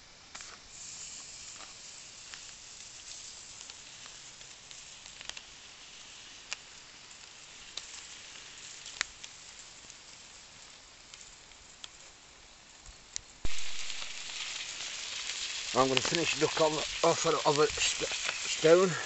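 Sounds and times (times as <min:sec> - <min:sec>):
food sizzling: 0:00.0 - 0:19.0
sharp pops: 0:13.4 - 0:18.9.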